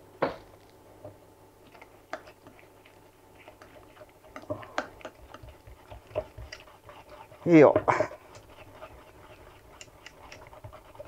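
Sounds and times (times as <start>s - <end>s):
whisk clicking against metal bowl: 3.4s - 11.0s.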